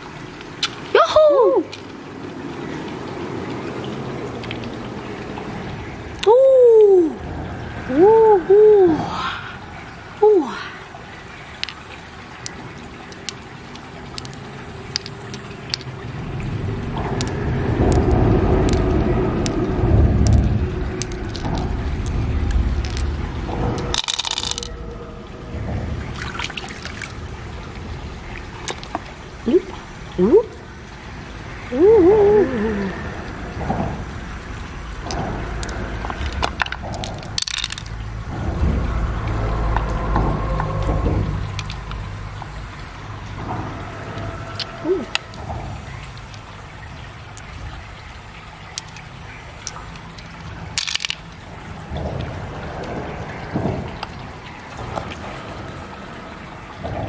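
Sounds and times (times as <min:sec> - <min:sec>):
pearls clicking together: 0:00.4 - 0:01.0, 0:01.6 - 0:01.9, 0:11.3 - 0:16.2, 0:17.0 - 0:19.6, 0:20.2 - 0:24.8, 0:28.6 - 0:29.1, 0:35.0 - 0:38.0, 0:41.5 - 0:42.0, 0:44.5 - 0:47.6, 0:48.4 - 0:52.0
low rumble: 0:10.9 - 0:57.0.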